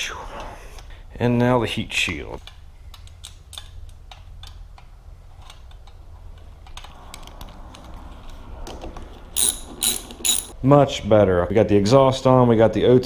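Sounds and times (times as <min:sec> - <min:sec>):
small metal hardware clicking: 0:09.4 - 0:10.6.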